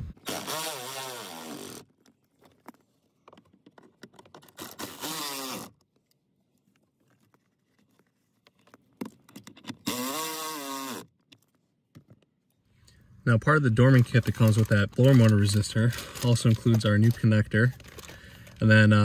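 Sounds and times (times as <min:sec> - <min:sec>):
electric screwdriver whirring: 0:00.2 - 0:01.8, 0:04.6 - 0:05.7, 0:09.9 - 0:11.1.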